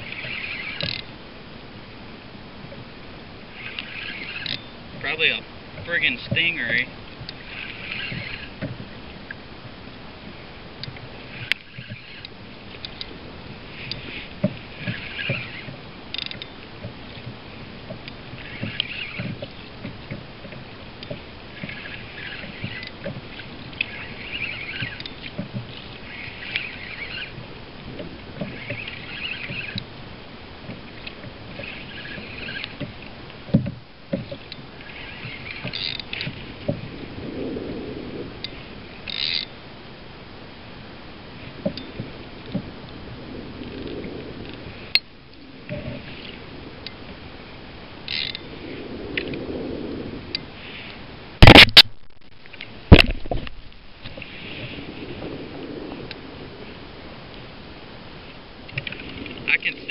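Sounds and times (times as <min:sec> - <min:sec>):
fishing reel cranking: 0:00.0 - 0:01.1, 0:03.5 - 0:08.7, 0:10.8 - 0:16.6, 0:18.0 - 0:20.2, 0:21.0 - 0:27.4, 0:28.4 - 0:29.9, 0:31.4 - 0:32.8, 0:34.5 - 0:36.4, 0:38.4 - 0:39.5, 0:48.1 - 0:48.4
reel clicks: 0:00.0 - 0:37.1, 0:38.4 - 0:39.6, 0:41.4 - 0:43.0, 0:43.6 - 0:49.5, 0:50.3 - 0:55.0, 0:56.0 - 0:56.7, 0:58.2 - 0:59.9.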